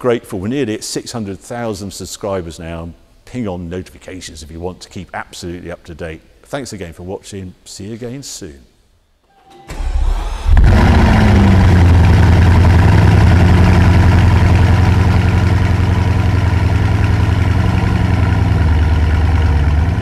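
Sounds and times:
car engine starting and idling: 9.6s - 20.0s.

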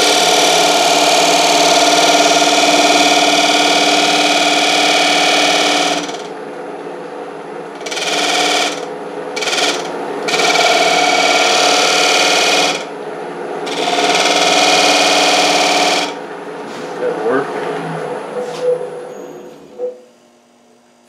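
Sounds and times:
lathe tool scraping wood: 0.0s - 6.3s, 7.8s - 12.9s, 13.7s - 17.0s
lathe running: 0.0s - 18.5s.

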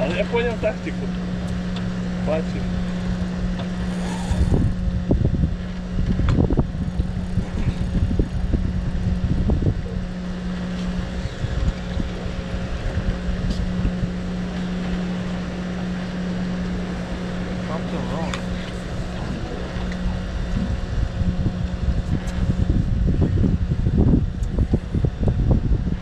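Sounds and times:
outboard motor running: 0.0s - 26.0s
wind buffeting microphone: 0.0s - 26.0s.

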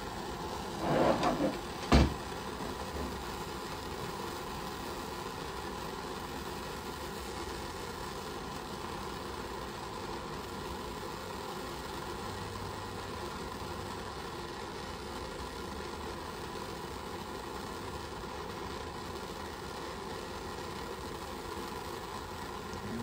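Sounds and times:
torch flame hissing: 0.0s - 23.0s
sharp knock: 1.8s - 2.2s.

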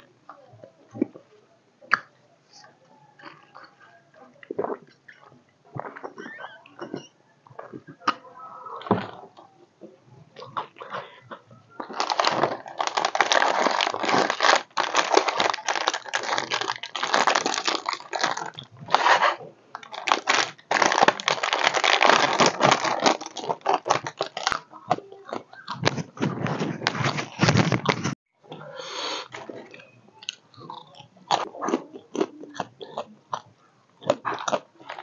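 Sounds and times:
plastic snack packet crackling: 10.5s - 28.1s.

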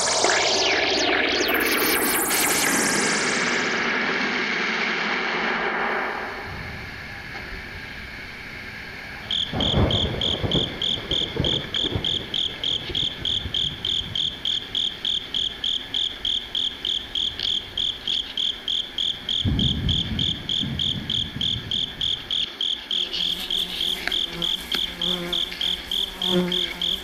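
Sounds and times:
insect chirping: 6.3s - 27.0s.

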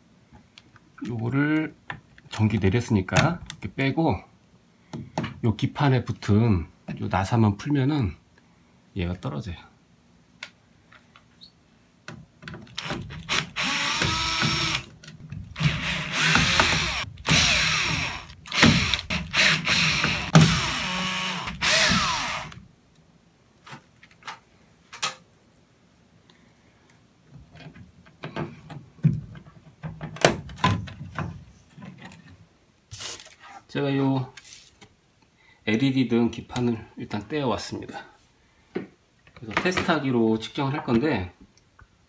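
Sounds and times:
cordless drill motor whine: 12.8s - 14.9s, 15.6s - 22.6s.

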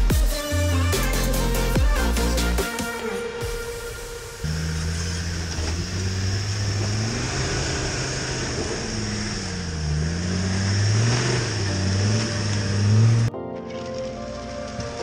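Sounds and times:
car engine revving: 3.2s - 15.0s.

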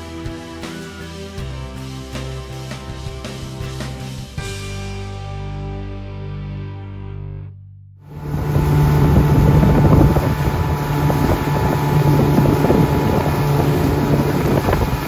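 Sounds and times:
outboard motor drone: 8.1s - 15.0s
water rushing: 8.1s - 15.0s
wind buffeting microphone: 8.1s - 15.0s.

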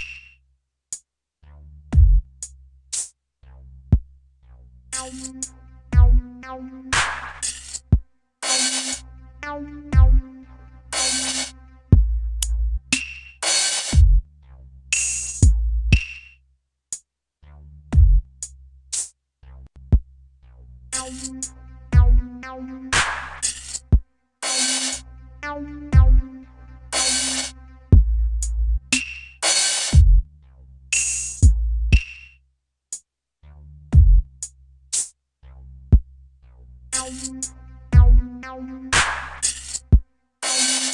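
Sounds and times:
noisy snare hits: 0.0s - 0.3s, 6.9s - 7.8s, 12.9s - 14.1s, 22.9s - 23.8s, 28.9s - 30.0s, 31.0s - 32.3s, 39.0s - 39.8s
deep kick drums: 1.9s - 2.3s, 6.0s - 6.2s, 10.0s - 10.2s, 11.9s - 12.2s, 13.9s - 14.2s, 15.4s - 16.0s, 17.9s - 18.3s, 22.0s - 22.2s, 26.0s - 26.3s, 27.9s - 28.2s, 29.9s - 30.3s, 31.4s - 32.0s, 33.9s - 34.3s, 38.0s - 38.2s
hi-hat ticks: 2.0s - 3.1s, 11.0s - 14.2s, 14.9s - 17.1s, 18.0s - 19.1s, 28.4s - 30.2s, 31.0s - 33.1s, 34.0s - 35.2s
low bass line: 3.5s - 7.0s, 9.0s - 12.9s, 15.4s - 15.9s, 19.5s - 23.1s, 25.0s - 28.9s, 30.0s - 30.8s, 31.4s - 31.9s, 35.5s - 39.2s
electronic drum machine beat: 5.0s - 14.2s, 21.0s - 30.2s, 37.0s - 40.0s.

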